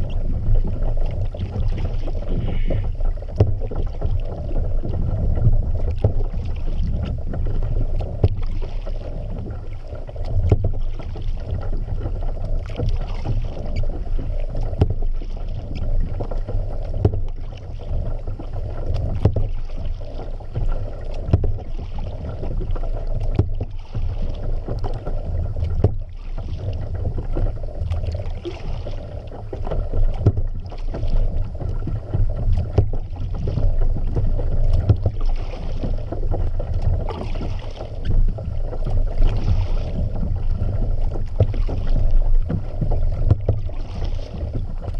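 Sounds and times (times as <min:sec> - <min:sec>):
paddle strokes splashing water: 0:00.0 - 0:44.9
steady low rumble: 0:00.0 - 0:44.9
small knocks: 0:03.4 - 0:03.9.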